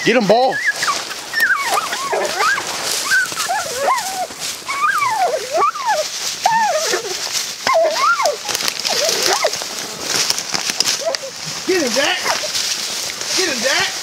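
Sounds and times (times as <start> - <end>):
dogs yelping and whining: 0.3 - 9.6, 10.9 - 11.4.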